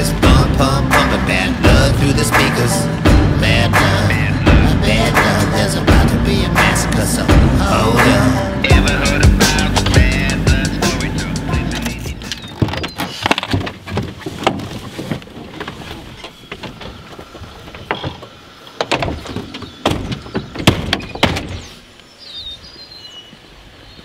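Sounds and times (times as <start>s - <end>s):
truck door clicks and knocks: 18.8s - 21.7s.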